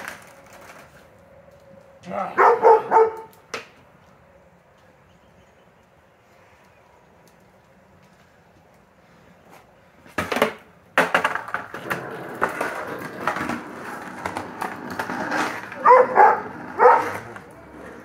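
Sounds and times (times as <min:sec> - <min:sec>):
skateboard set down on concrete: 0:00.0 - 0:01.2, 0:09.5 - 0:15.9
skateboard wheels rolling on concrete: 0:00.0 - 0:18.0
dog barking: 0:02.2 - 0:03.3, 0:15.8 - 0:17.3.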